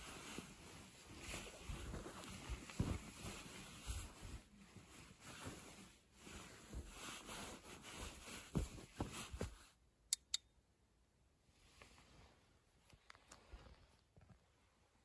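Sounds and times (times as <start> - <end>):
bedding fabric rustling: 0.0 - 9.8
lantern switch clicks: 10.1 - 10.5.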